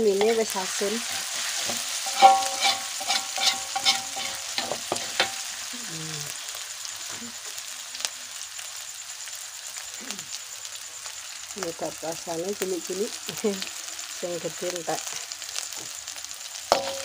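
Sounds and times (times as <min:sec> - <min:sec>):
food sizzling in oil: 0:00.0 - 0:17.0
metal spatula scraping wok: 0:00.2 - 0:05.6, 0:16.7 - 0:17.0.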